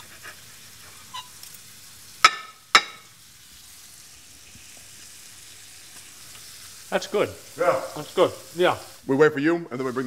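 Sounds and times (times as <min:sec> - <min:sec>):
frying sizzle: 0:00.0 - 0:10.0.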